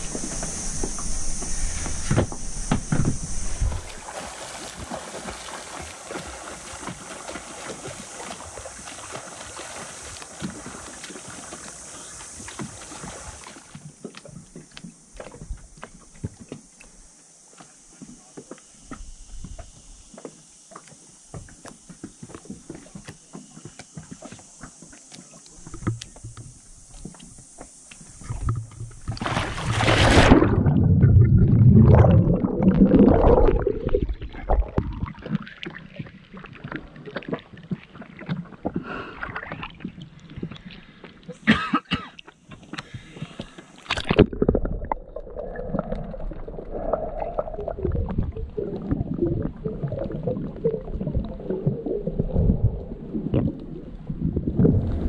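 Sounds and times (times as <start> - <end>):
wind noise: 0.0 - 5.4, 52.2 - 55.0
muffled underwater sloshing and bubbling: 28.0 - 55.0.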